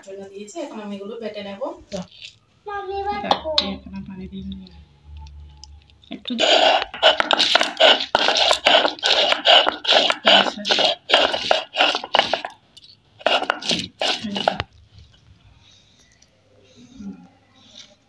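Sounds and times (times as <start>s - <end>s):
stone roller grinding on stone slab: 6.4s - 12.6s, 13.2s - 14.6s.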